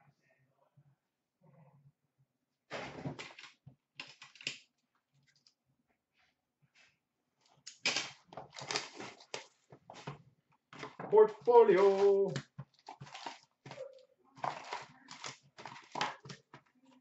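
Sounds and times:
trading cards rustling and sliding: 0:10.8 - 0:12.4.

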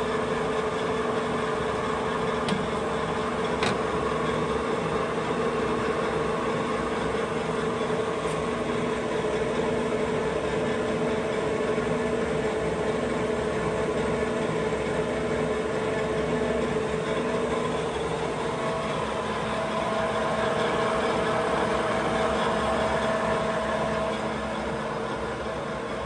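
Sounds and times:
lathe running with gear whine: 0:00.0 - 0:26.0
higher machine whine: 0:13.7 - 0:26.0.

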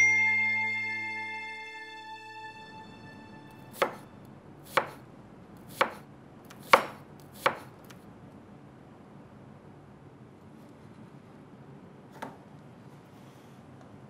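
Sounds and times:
knife chopping on cutting board: 0:03.7 - 0:04.0, 0:04.7 - 0:05.0, 0:05.6 - 0:08.0.

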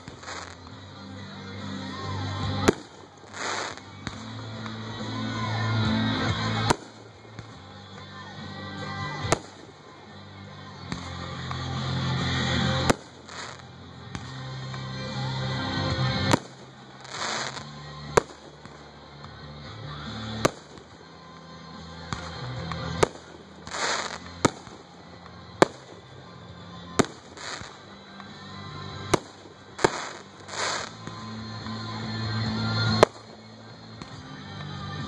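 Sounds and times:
background music: 0:00.0 - 0:35.0
firework shells bursting: 0:23.0 - 0:24.8, 0:29.1 - 0:31.1.

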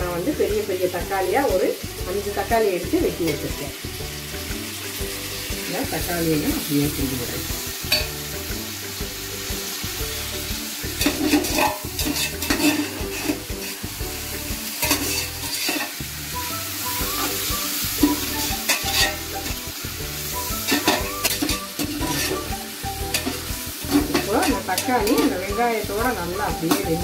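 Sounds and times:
onions and tomatoes sizzling: 0:00.0 - 0:27.0
ladle scraping a pot: 0:11.0 - 0:13.8, 0:14.8 - 0:16.0, 0:18.0 - 0:19.5, 0:20.6 - 0:22.5, 0:23.1 - 0:25.3.

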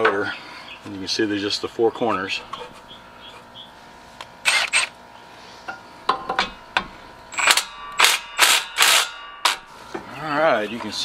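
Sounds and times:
impact wrench bursts: 0:04.4 - 0:04.9, 0:07.3 - 0:09.7.

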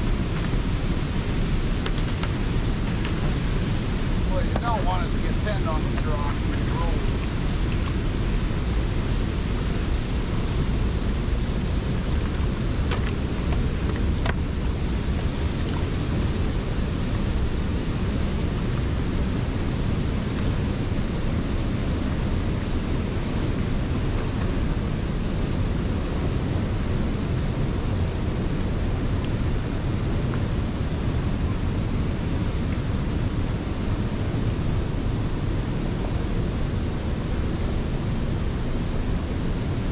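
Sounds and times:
waterfall rushing: 0:00.0 - 0:08.4
whitewater churning: 0:00.0 - 0:21.2.

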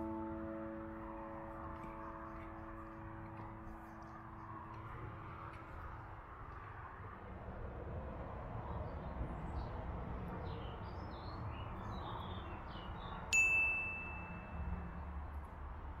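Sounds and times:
bright chime: 0:13.3 - 0:14.6.

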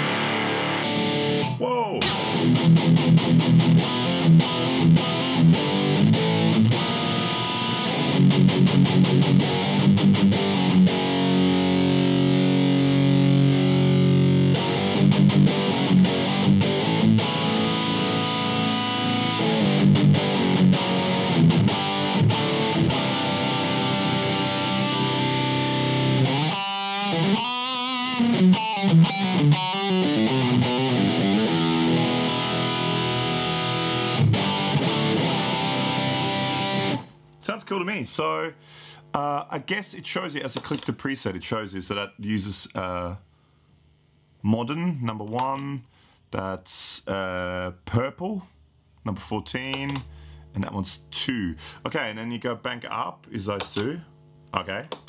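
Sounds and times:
fuzz-distorted electric guitar riffing: 0:00.0 - 0:37.2.

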